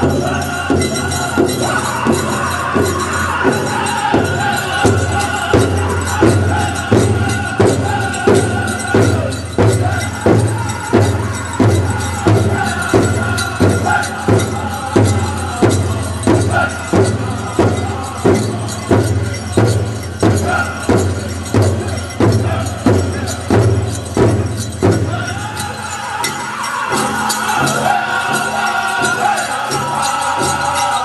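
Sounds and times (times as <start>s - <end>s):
large drum steady beat: 0.0s - 31.0s.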